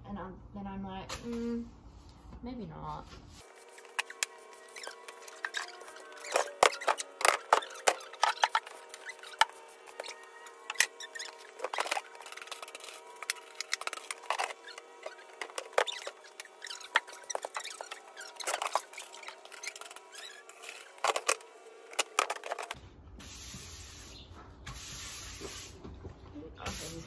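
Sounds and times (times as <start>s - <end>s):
scratchy rustling: 3.2s - 22.8s.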